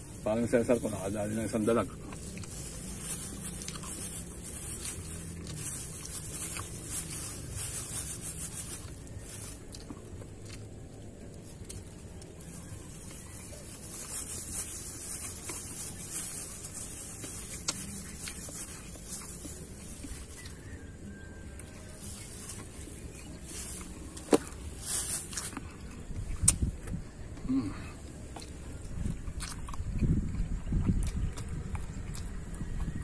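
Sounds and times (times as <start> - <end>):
plastic bag crinkling: 0.0 - 26.0
steady low rumble: 0.0 - 33.0.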